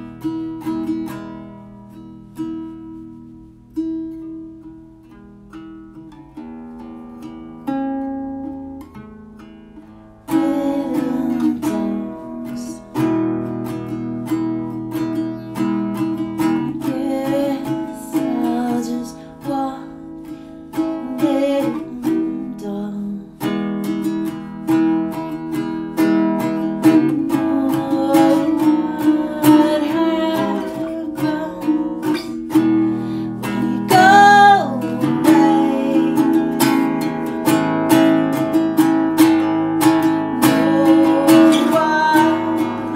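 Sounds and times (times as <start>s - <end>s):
acoustic guitar: 0.0s - 42.9s
man singing: 33.9s - 36.8s, 40.4s - 42.9s.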